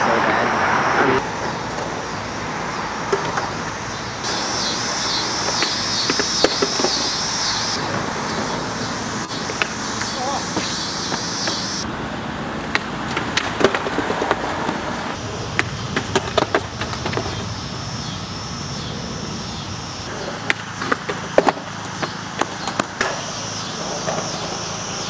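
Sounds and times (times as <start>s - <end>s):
skateboard wheels rolling: 0.0s - 25.0s
traffic hum: 0.0s - 25.0s
skateboard clattering on ground: 3.0s - 7.1s, 12.6s - 17.5s, 20.1s - 24.8s
skateboard tail snapping: 3.0s - 7.2s, 9.5s - 11.6s, 12.6s - 14.9s, 15.5s - 17.4s, 20.2s - 23.3s.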